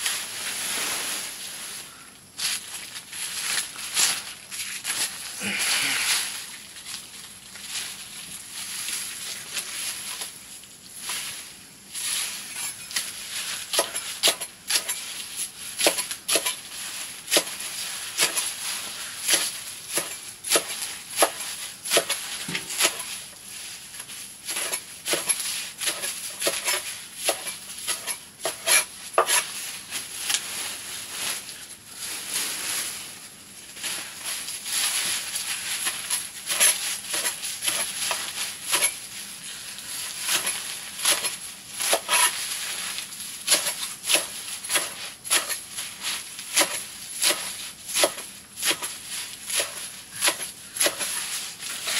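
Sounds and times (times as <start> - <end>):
blade chopping greens: 12.9 - 15.0, 15.7 - 18.6, 19.2 - 23.2, 24.0 - 29.6, 34.9 - 51.9.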